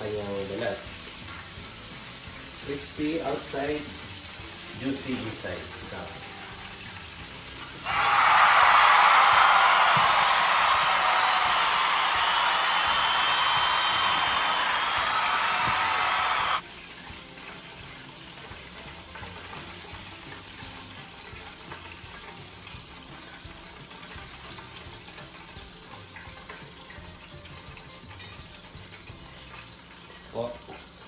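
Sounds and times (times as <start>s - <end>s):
chicken sizzling in deep fryer: 0.0s - 31.0s
loud music: 7.9s - 16.6s.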